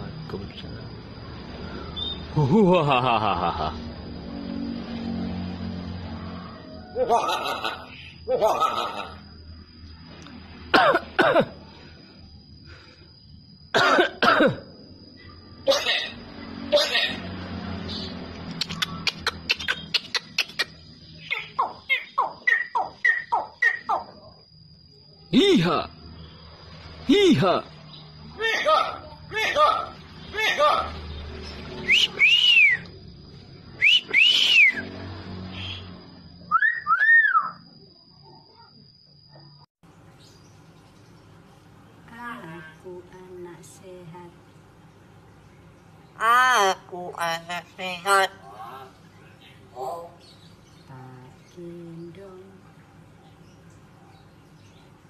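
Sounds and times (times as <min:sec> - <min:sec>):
myna bird whistling: 0:01.7 - 0:02.3, 0:17.9 - 0:24.2, 0:31.8 - 0:33.0, 0:33.8 - 0:34.9, 0:35.5 - 0:35.9, 0:36.5 - 0:37.6
bird harsh cough-like calls: 0:10.7 - 0:11.6, 0:13.8 - 0:14.7, 0:15.7 - 0:17.2, 0:19.0 - 0:24.0.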